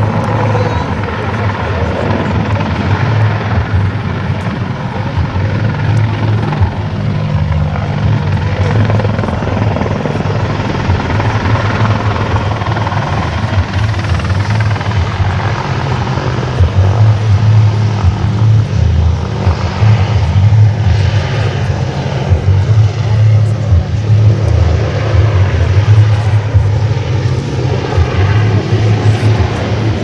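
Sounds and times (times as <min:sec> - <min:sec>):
helicopter engines: 0:00.0 - 0:30.0
helicopter rotor beat: 0:00.0 - 0:30.0.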